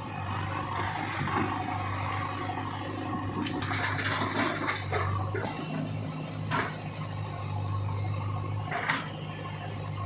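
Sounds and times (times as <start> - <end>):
diesel engine running: 0.0 - 10.0
stones clattering into trolley: 3.5 - 4.9.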